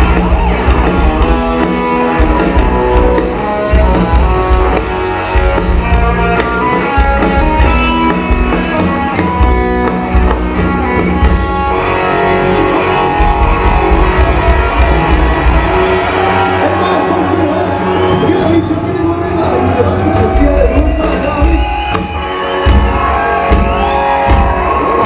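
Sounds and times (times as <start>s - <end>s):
live rock band playing: 0.0s - 25.0s.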